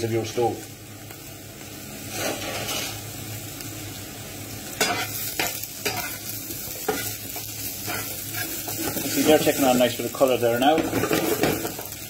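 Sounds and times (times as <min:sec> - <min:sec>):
potatoes sizzling in oil: 0:00.0 - 0:12.0.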